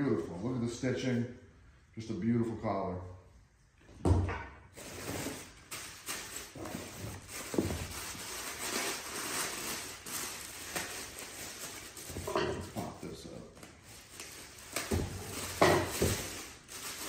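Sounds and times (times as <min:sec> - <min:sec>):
packaging crinkling and rustling: 0:04.8 - 0:17.0.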